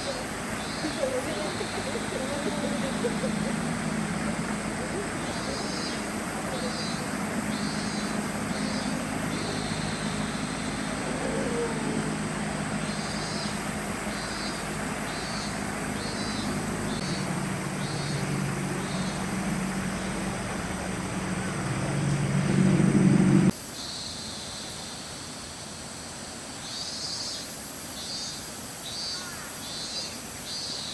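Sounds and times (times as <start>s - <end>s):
low motor hum: 0.0s - 23.5s
wash of noise: 0.0s - 23.5s.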